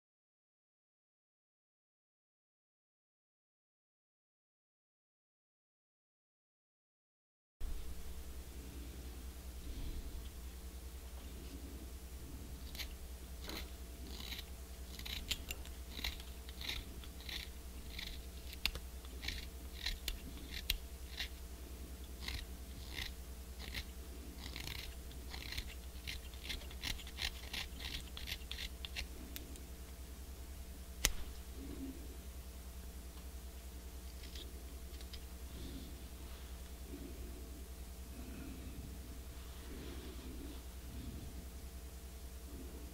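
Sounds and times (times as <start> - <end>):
knife scraping a reed: 12.6 - 21.4, 22.0 - 29.1.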